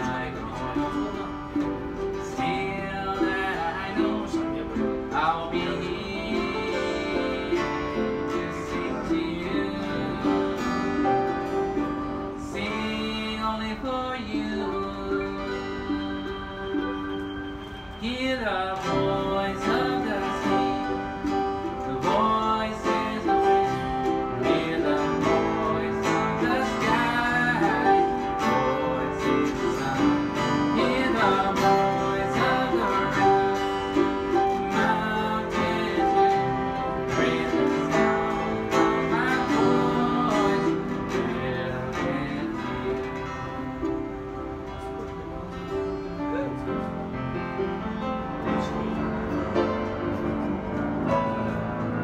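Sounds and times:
man singing into a microphone: 0.0s - 17.0s, 17.7s - 44.2s
piano: 0.0s - 52.0s
strummed acoustic guitar: 0.0s - 52.0s
ukulele: 0.0s - 52.0s.

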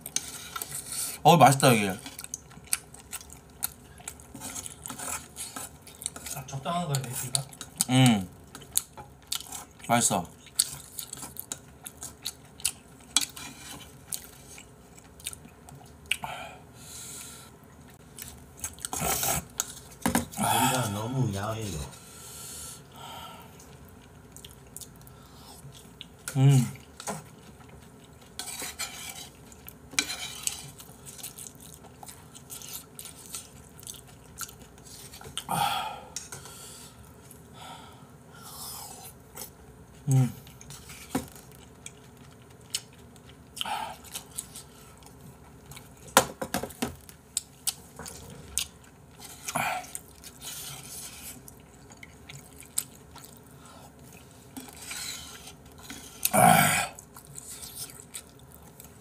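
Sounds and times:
person chewing food: 2.0s - 21.0s, 22.0s - 59.0s.

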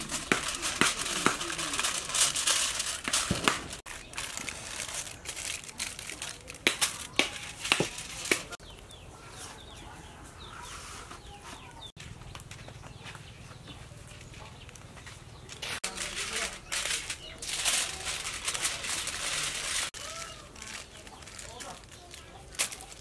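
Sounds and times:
aluminium foil crinkling: 0.0s - 8.6s, 15.5s - 23.0s
chickens clucking: 8.4s - 15.8s.

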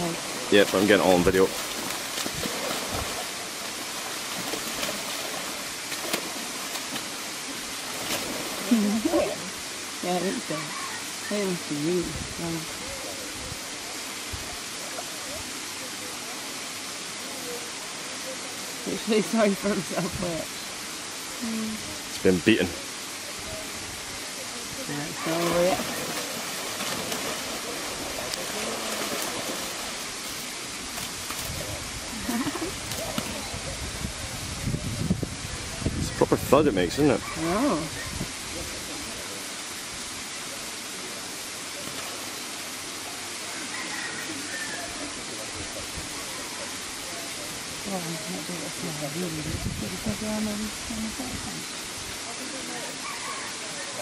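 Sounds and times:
water splashing and churning: 0.0s - 10.9s, 23.5s - 53.5s
steady rushing hiss: 0.0s - 54.0s.

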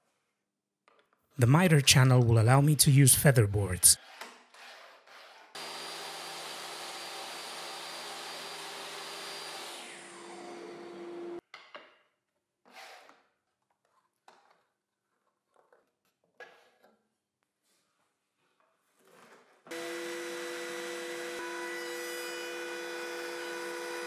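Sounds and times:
trim router whining: 5.6s - 11.4s, 19.7s - 21.8s.

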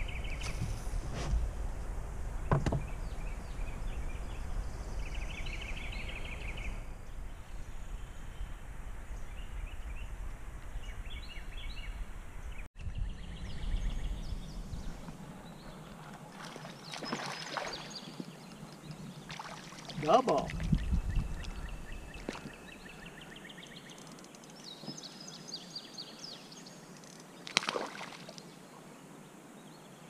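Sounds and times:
birds chirping and trilling: 2.4s - 27.6s
river rumble: 13.4s - 26.0s, 26.8s - 29.2s.

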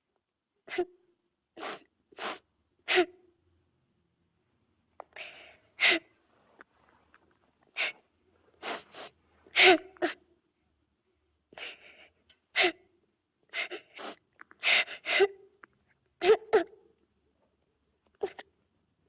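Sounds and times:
child sobbing: 9.5s - 10.2s, 16.2s - 16.8s, 18.2s - 18.4s.

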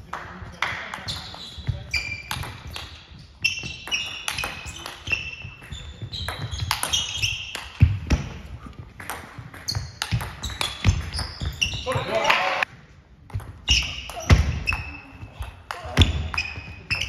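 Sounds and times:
sports shoes squeaking on floor: 1.0s - 8.7s, 9.4s - 12.7s, 13.5s - 17.0s
table tennis balls clicking: 2.2s - 8.3s, 8.9s - 11.6s.

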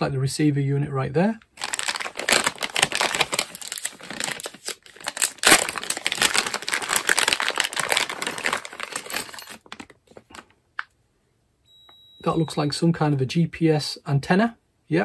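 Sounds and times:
foil bag crinkling: 1.6s - 10.4s.

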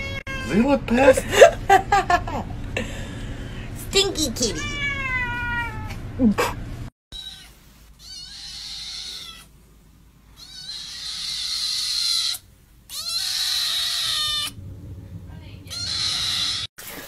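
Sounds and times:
kitten meowing: 4.5s - 6.0s, 7.1s - 9.5s, 10.4s - 14.6s, 15.7s - 16.7s.

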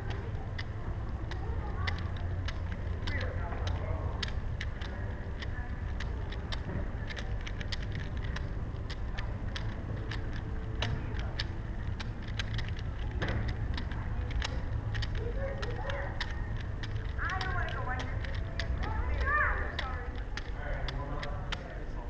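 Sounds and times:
plastic puzzle cubes clicking: 0.0s - 22.0s
steady low hum: 0.0s - 22.0s.

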